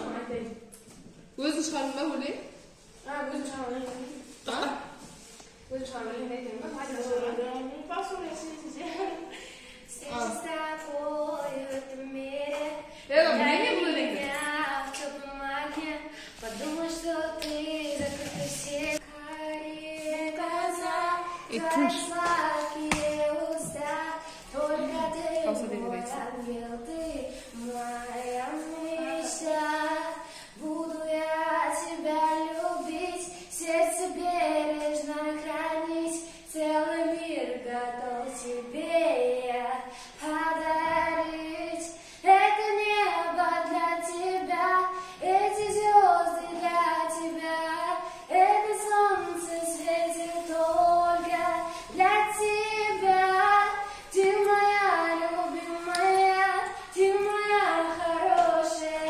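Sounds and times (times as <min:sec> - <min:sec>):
girl singing: 0:06.8 - 0:59.0.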